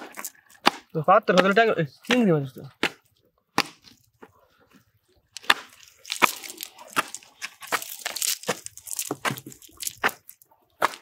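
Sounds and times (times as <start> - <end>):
net rustling: 5.3 - 10.5.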